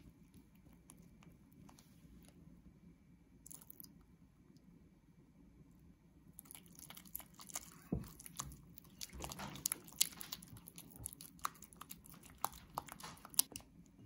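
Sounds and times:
spatula stirring sticky filling: 0:06.4 - 0:13.8.

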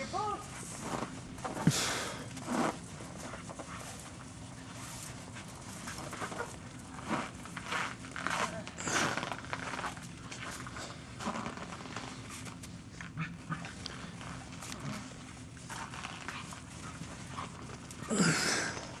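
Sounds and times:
dogs panting: 0:15.7 - 0:18.1.

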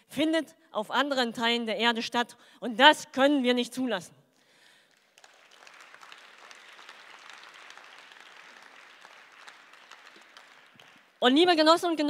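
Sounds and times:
audience applauding: 0:04.9 - 0:11.3.

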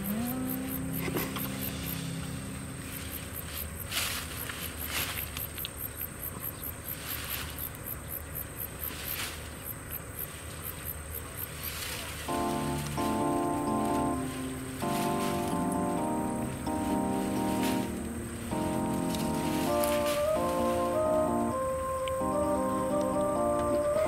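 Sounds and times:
low held note: 0:00.0 - 0:03.4, 0:12.3 - 0:24.0
insects chirping: 0:00.0 - 0:24.0
rustling leaves and stems: 0:00.0 - 0:24.0.

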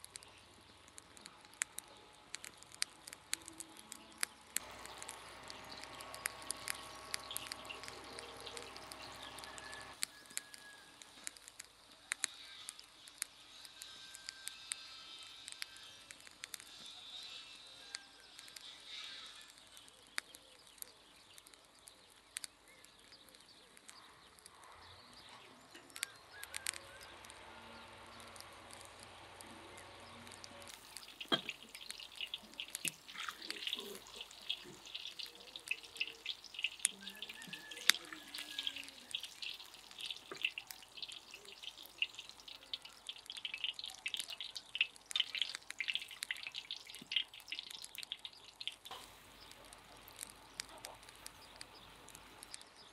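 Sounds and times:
scattered clicks: 0:00.0 - 0:16.9, 0:18.3 - 0:52.9
vegetables sizzling in oil: 0:01.4 - 0:16.0, 0:27.0 - 0:52.9.

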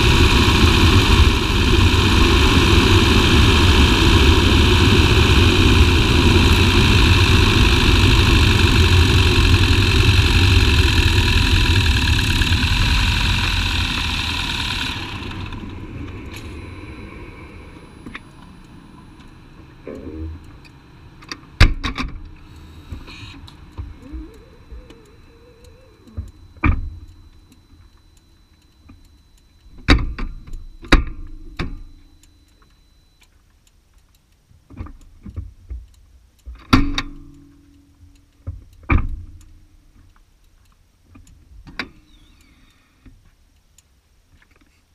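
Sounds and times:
car creeping low rumble: 0:00.0 - 0:27.2
faint high whine: 0:00.0 - 0:33.3.

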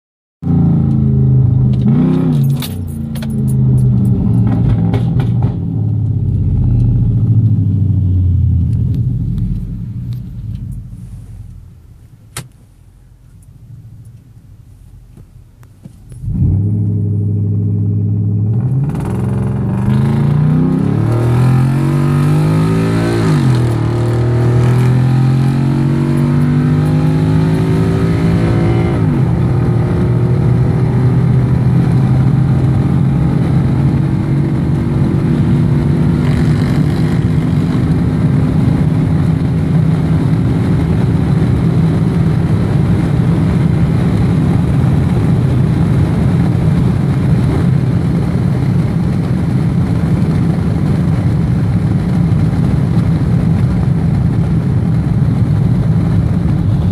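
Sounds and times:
truck exhaust accelerating hard: 0:16.1 - 0:56.9.

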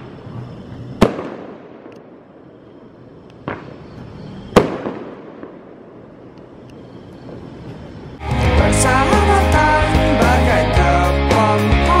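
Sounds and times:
distant fireworks bangs: 0:00.0 - 0:06.3.

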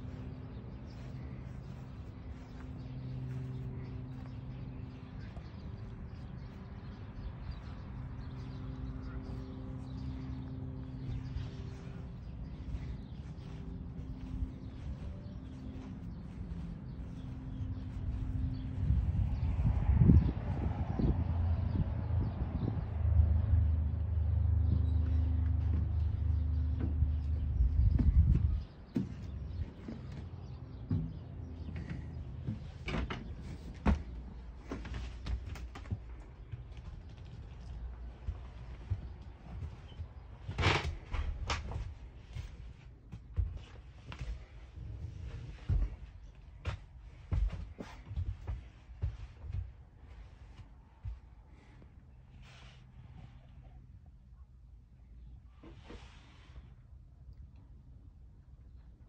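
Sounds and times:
low rumble: 0:00.0 - 0:28.9
steady low hum: 0:00.0 - 0:55.6
footsteps and bumps in cabin: 0:00.1 - 0:20.0, 0:24.6 - 0:52.0.

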